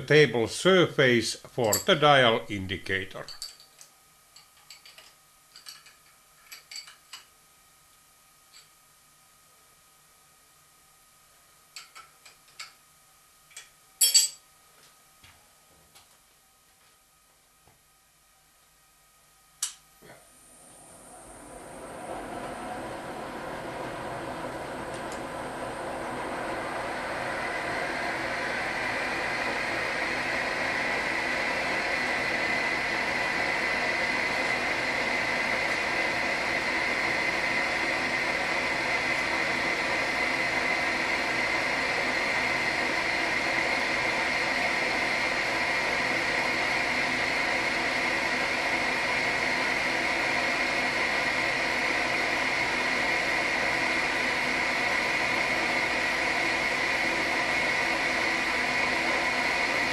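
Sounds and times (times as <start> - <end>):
milling machine running: 20.4 - 59.9.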